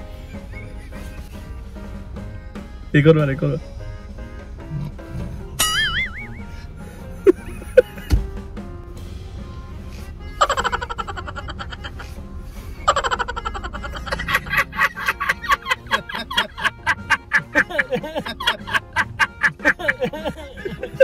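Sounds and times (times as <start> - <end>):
music clip: 0.0 - 21.0
rapid pulsing laughter: 0.1 - 1.7, 5.7 - 8.1, 10.4 - 21.0.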